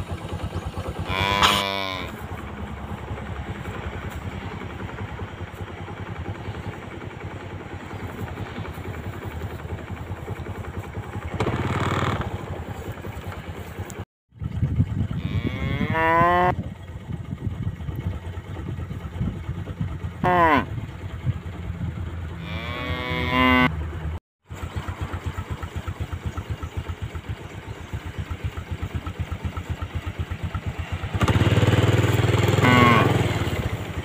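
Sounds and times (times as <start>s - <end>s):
cattle mooing: 1.0s - 2.3s, 15.1s - 16.6s, 20.2s - 20.7s, 22.4s - 23.8s, 32.5s - 33.3s.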